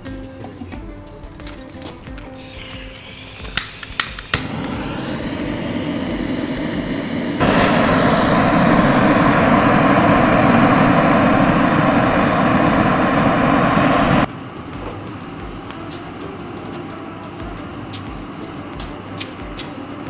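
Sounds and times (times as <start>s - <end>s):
burner rushing: 4.3s - 14.3s.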